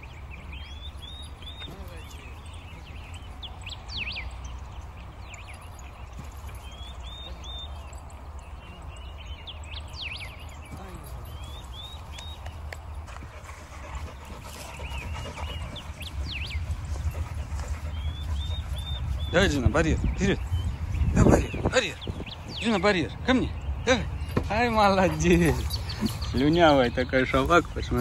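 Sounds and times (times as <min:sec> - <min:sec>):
high chirping calls: 0:00.0 - 0:28.0
wind rumbling on microphone: 0:13.3 - 0:22.9.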